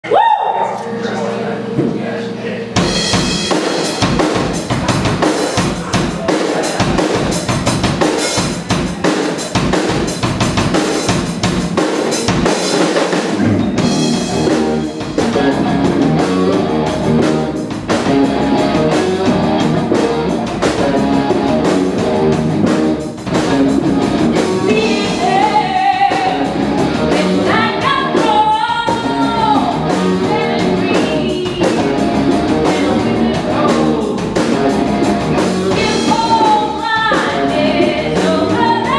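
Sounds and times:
electric guitar: 0.1s - 38.9s
live rock band playing: 0.1s - 38.9s
pounding drum kit: 1.6s - 38.9s
woman singing: 24.6s - 32.0s, 32.6s - 34.2s, 35.7s - 38.9s.

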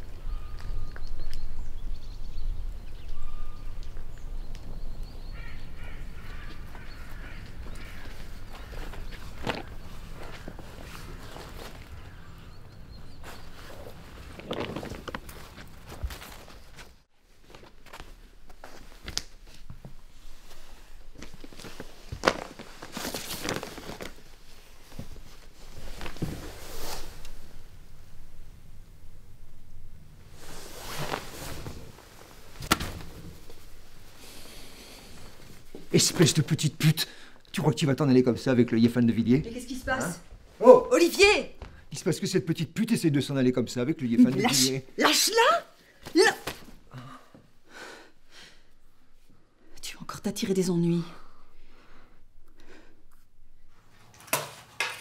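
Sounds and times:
birds calling: 0.0s - 14.6s
rustling: 0.0s - 36.5s
footsteps: 6.0s - 12.2s.

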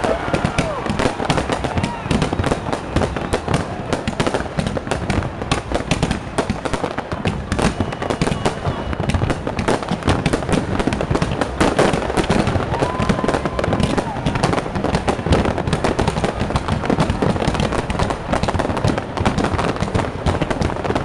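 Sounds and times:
firework whistle: 0.0s - 4.5s, 6.8s - 10.4s
fireworks bangs and crackles: 0.0s - 21.0s.

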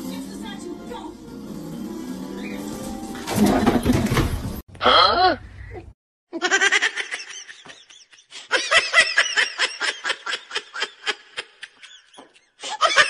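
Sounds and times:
high-pitched laughter: 6.3s - 13.0s.

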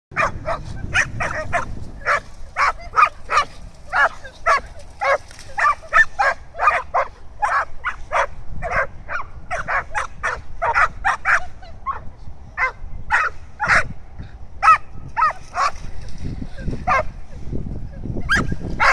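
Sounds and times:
dogs barking excitedly: 0.1s - 17.2s, 18.2s - 18.9s.

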